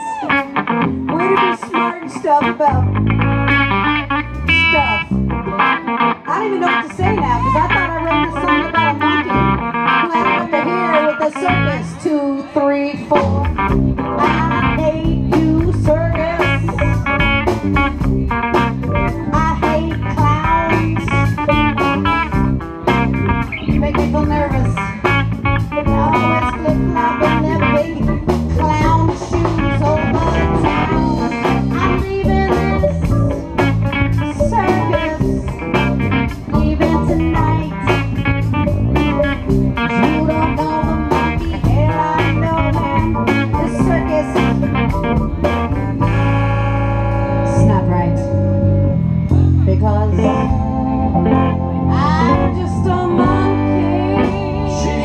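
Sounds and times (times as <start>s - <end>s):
electric guitar: 0.0s - 55.0s
keyboard: 0.0s - 55.0s
woman singing into microphone: 1.1s - 3.0s, 6.3s - 17.3s, 19.0s - 22.2s, 23.7s - 33.4s, 34.0s - 38.5s, 39.8s - 44.9s, 49.6s - 51.0s, 51.8s - 55.0s.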